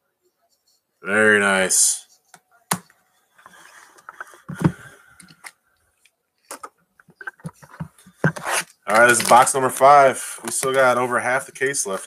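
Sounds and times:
plastic and paper rustling: 0:06.5 - 0:11.1.

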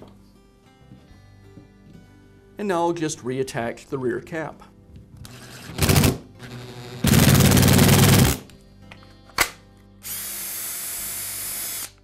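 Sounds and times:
drill rattling burst: 0:05.4 - 0:08.4
drill high whine: 0:10.0 - 0:12.0.

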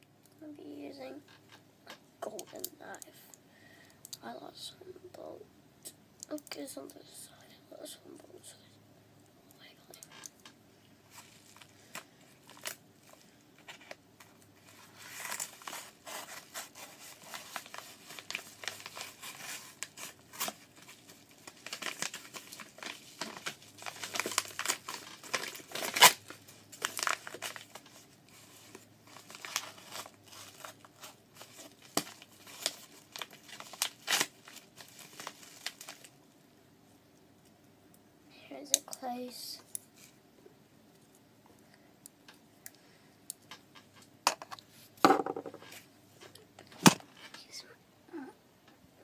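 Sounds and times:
packaging being torn open: 0:21.4 - 0:27.8, 0:29.2 - 0:36.1.

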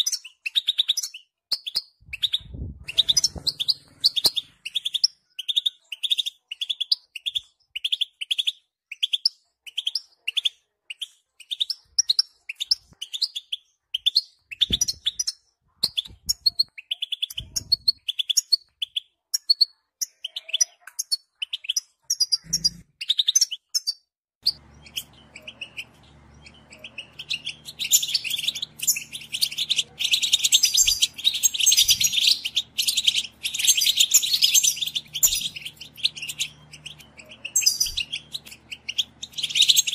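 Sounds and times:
goldfinch chirping: 0:00.0 - 0:39.9
dense goldfinch twittering: 0:24.7 - 0:39.9.

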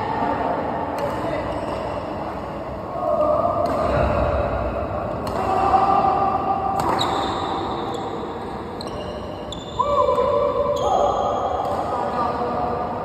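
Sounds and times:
rackets striking shuttlecock: 0:03.6 - 0:04.4, 0:05.1 - 0:05.8, 0:06.7 - 0:07.3.

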